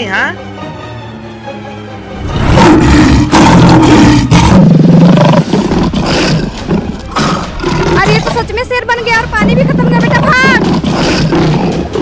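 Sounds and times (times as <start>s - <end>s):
lion roaring: 2.2s - 8.3s, 9.4s - 12.0s.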